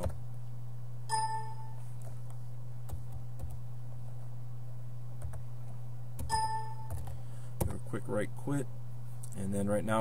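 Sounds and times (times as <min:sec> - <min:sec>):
steady low hum: 0:00.0 - 0:10.0
computer alert ding: 0:01.1 - 0:01.8, 0:06.3 - 0:07.0.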